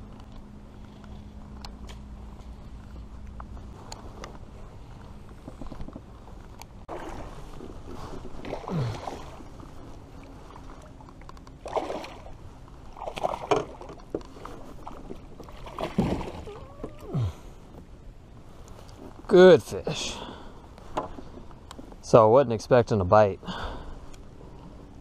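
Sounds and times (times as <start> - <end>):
water splashing against kayak hull: 6.9 - 17.1.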